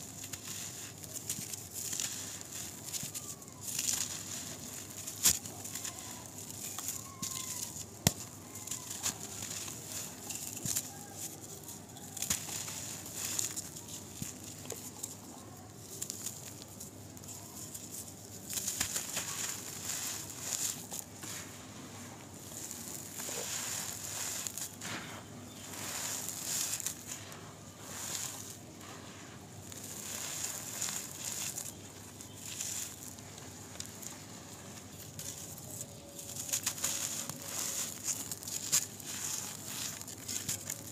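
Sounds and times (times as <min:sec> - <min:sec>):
dry dirt crunching and crumbling: 0:00.0 - 0:40.9
dirt smoothed on hard floor: 0:18.7 - 0:35.7.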